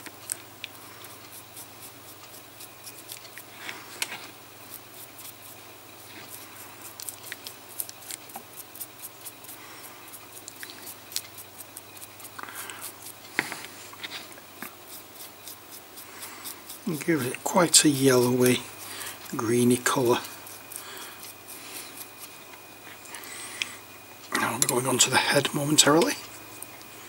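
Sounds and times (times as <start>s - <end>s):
dry brush scratching: 0.8s - 23.3s.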